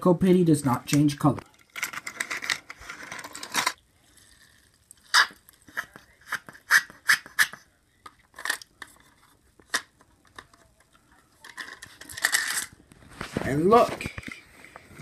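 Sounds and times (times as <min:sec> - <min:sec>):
toy car scraping plastic: 0:01.7 - 0:03.8, 0:05.1 - 0:07.6.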